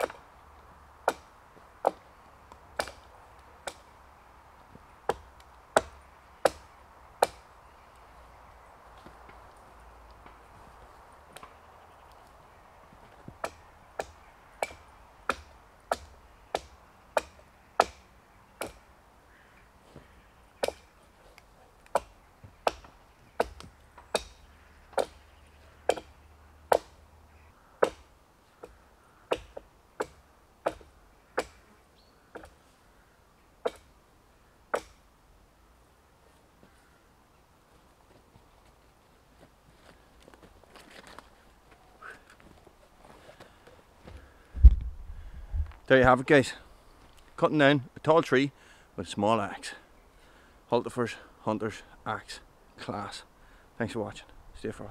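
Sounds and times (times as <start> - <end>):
axe chopping branches: 0.0 - 0.2, 1.0 - 3.9, 5.1 - 7.4, 13.2 - 18.0, 18.6 - 18.8, 20.6 - 21.0, 21.8 - 25.2, 25.8 - 27.0, 27.8 - 31.6, 33.6 - 34.0, 34.7 - 35.0.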